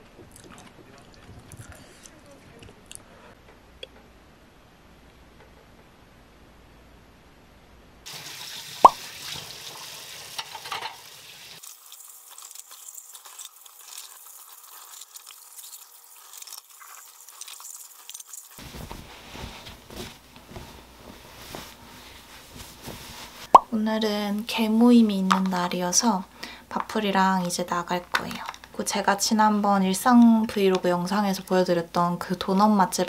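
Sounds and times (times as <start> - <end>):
water running from tap: 8.1 - 18.6
sweatshirt rustling: 18.6 - 23.6.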